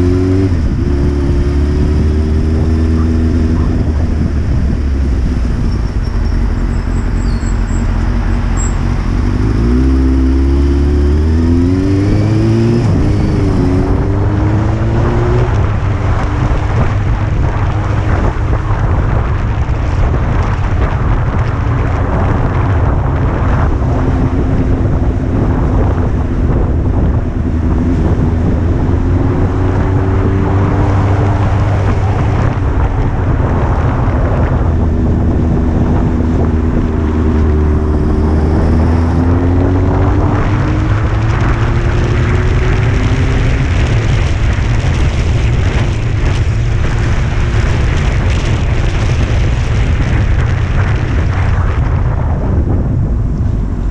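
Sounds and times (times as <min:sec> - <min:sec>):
motorcycle engine running: 0:00.0 - 0:53.9
wind noise on microphone: 0:00.0 - 0:53.9.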